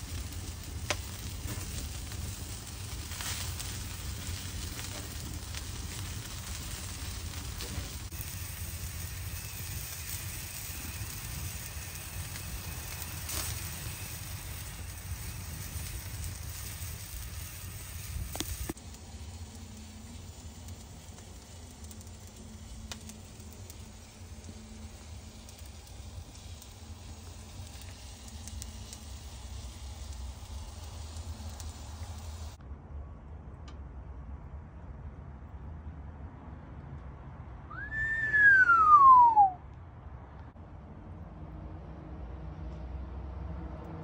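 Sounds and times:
fire crackling: 0.0s - 32.6s, 37.7s - 39.6s
meat sizzling on grill: 0.0s - 32.6s.

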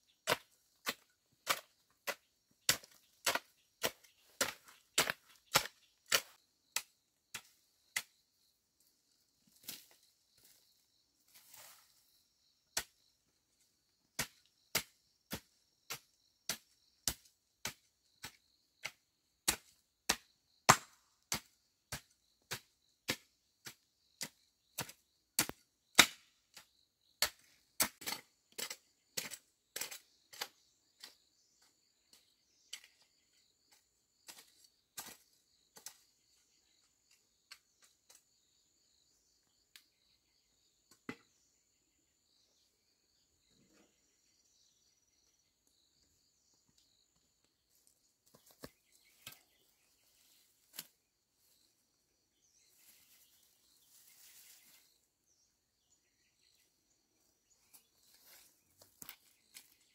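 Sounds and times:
insects chirring: 0.1s - 59.9s
sharp rhythmic chopping knocks: 14.2s - 26.2s.

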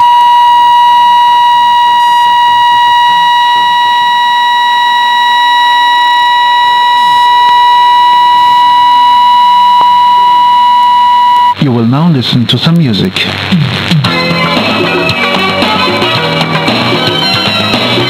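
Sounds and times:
steady test tone: 0.0s - 11.8s.

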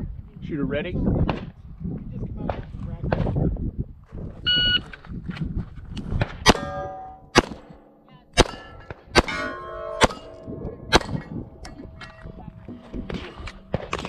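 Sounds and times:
pistol shots: 6.4s - 11.3s
steel target ringing clang: 6.5s - 14.0s.

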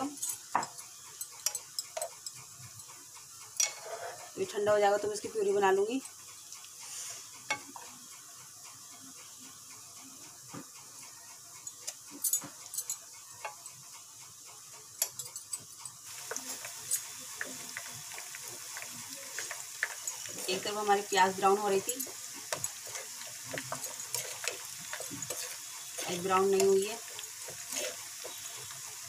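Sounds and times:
onions sizzling in oil: 0.0s - 29.0s
metal spoon tapping a pot: 0.2s - 2.4s, 3.6s - 3.8s, 11.7s - 13.7s, 15.0s - 29.0s.

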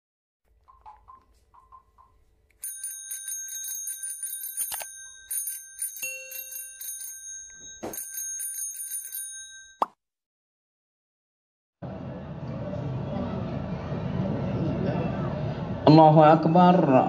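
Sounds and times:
bicycle bell ringing rapidly: 2.6s - 9.8s.

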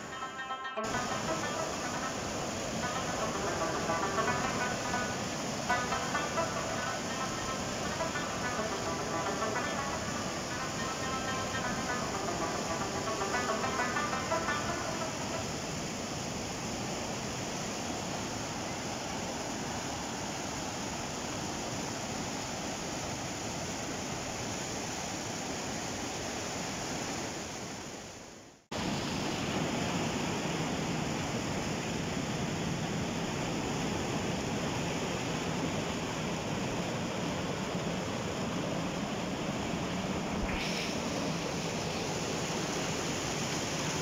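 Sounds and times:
water rushing over rocks: 0.0s - 28.0s, 28.8s - 44.0s.

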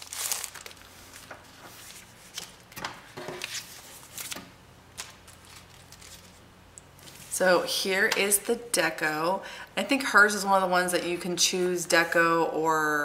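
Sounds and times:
paper sheets rustling and swishing: 0.0s - 4.4s, 5.0s - 6.4s, 7.0s - 7.5s.

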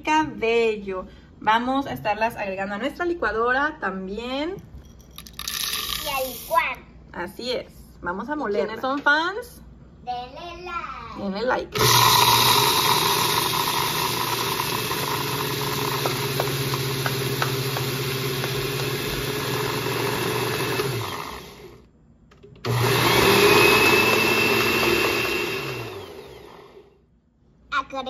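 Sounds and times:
blender grinding seeds: 5.4s - 6.5s, 11.8s - 21.8s, 22.7s - 26.9s.

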